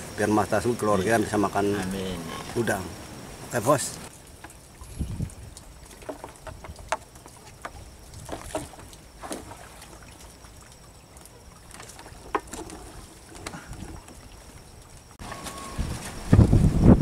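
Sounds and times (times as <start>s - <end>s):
knocks and splashes in water: 4.2s - 17.0s
wind rumble on microphone: 4.8s - 5.8s, 15.3s - 17.0s.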